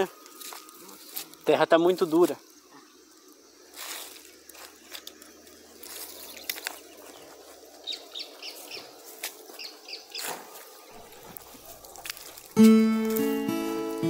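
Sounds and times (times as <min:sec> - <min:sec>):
footsteps on dry leaves: 0:00.0 - 0:02.4, 0:03.6 - 0:14.0
bird chirping: 0:04.8 - 0:12.0.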